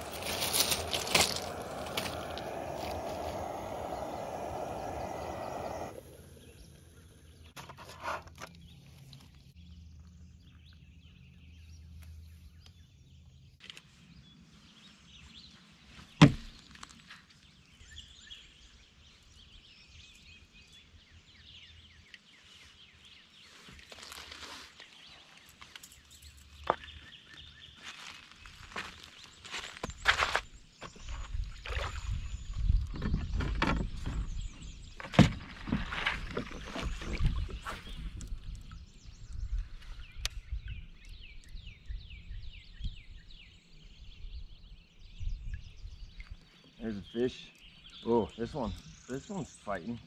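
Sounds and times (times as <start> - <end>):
footsteps on gravel: 0.0 - 3.6, 27.8 - 31.3
gas burner hissing: 0.0 - 7.2.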